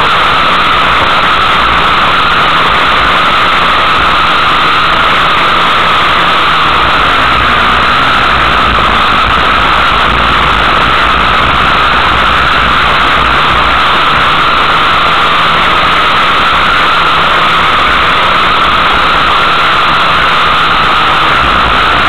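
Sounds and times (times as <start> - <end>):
loud vehicle engine: 0.0 - 22.0
low rumble: 1.6 - 19.2.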